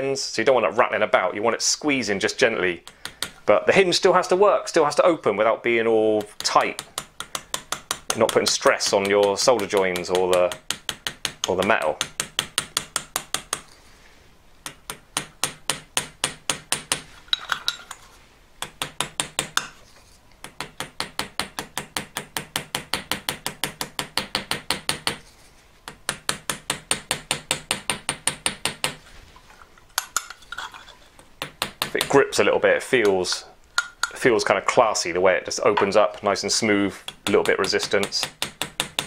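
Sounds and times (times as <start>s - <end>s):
small hammer tapping metal pin: 2.8s - 3.4s, 6.2s - 13.7s, 14.6s - 17.8s, 18.6s - 19.8s, 20.4s - 25.2s, 25.9s - 29.0s, 33.8s - 34.2s, 37.0s - 39.0s.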